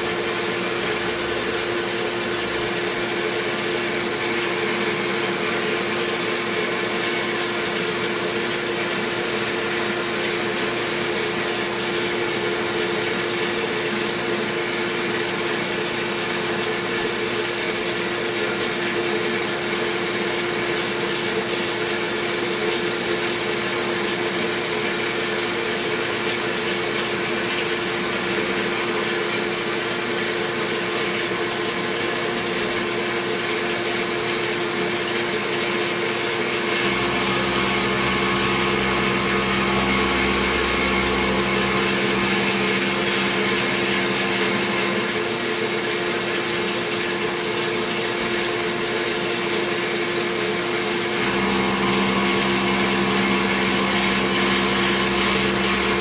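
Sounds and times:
deep machine hum: 0:00.0 - 0:15.2, 0:36.6 - 0:46.0, 0:51.1 - 0:56.0
milling spindle whine: 0:00.0 - 0:56.0.

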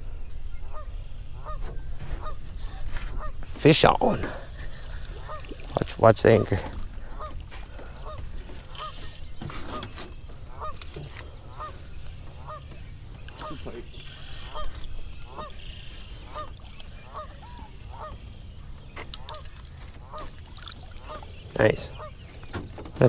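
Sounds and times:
geese honking: 0:00.6 - 0:02.4, 0:03.2 - 0:03.4, 0:04.9 - 0:05.6, 0:07.0 - 0:22.4.

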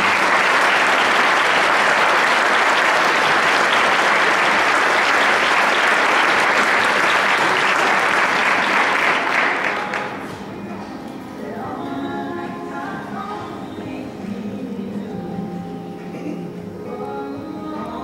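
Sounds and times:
audience clapping: 0:00.0 - 0:10.4.

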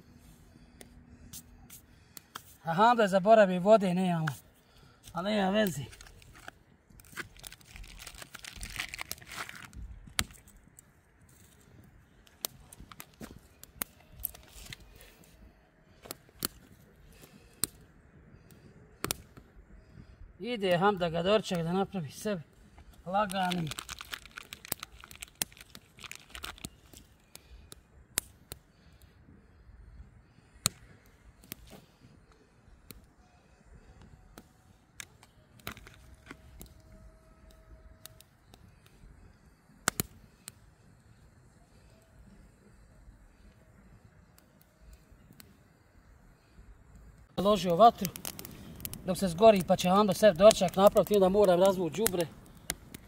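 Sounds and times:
wood fire crackling: 0:00.0 - 0:53.0
plastic packaging crinkling: 0:05.8 - 0:10.5, 0:23.2 - 0:27.1.

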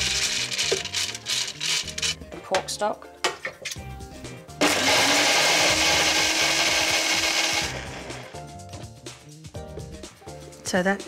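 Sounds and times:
electric blender running: 0:04.6 - 0:08.4.

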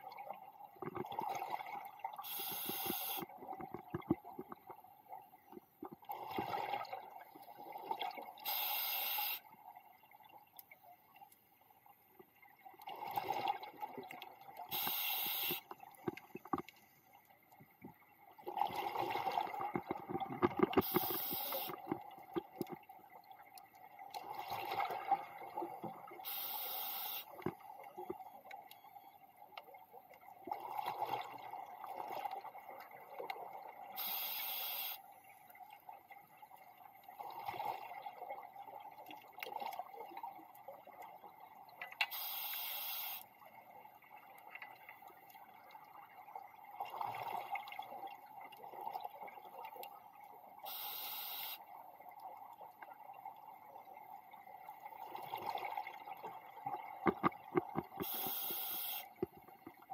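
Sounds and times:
exhaled bubbles gurgling underwater: 0:00.0 - 0:08.5, 0:18.3 - 0:26.4, 0:29.3 - 0:34.0, 0:52.3 - 0:59.9
regulator inhalation hiss: 0:02.3 - 0:03.2, 0:08.5 - 0:09.4, 0:14.7 - 0:15.6, 0:20.8 - 0:21.7, 0:26.3 - 0:27.3, 0:34.0 - 0:35.0, 0:42.2 - 0:43.2, 0:58.0 - 0:59.1.

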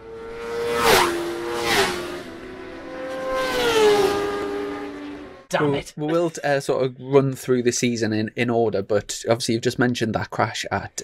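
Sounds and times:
racing motorcycle engine: 0:00.0 - 0:05.5.

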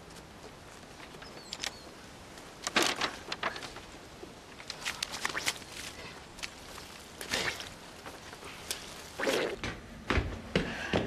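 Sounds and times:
footsteps in wet mud: 0:04.6 - 0:09.7.

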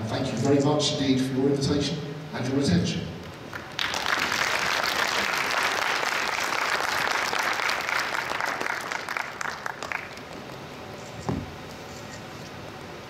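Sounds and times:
audience applauding: 0:03.5 - 0:10.6.

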